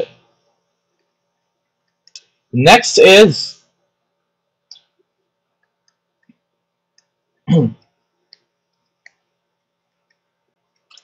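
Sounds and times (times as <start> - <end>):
man's short vocal sound: 7.5 - 7.8.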